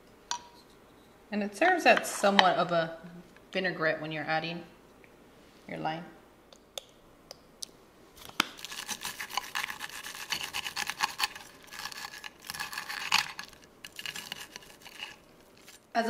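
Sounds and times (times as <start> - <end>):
knife sawing through crisp crust: 8.6 - 15.8.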